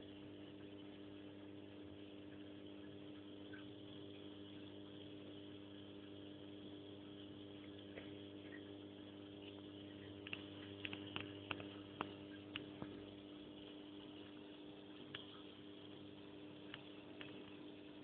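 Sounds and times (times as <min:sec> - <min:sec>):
low electrical hum: 0:00.0 - 0:18.0
small sharp clicks: 0:09.5 - 0:13.0, 0:16.7 - 0:17.6.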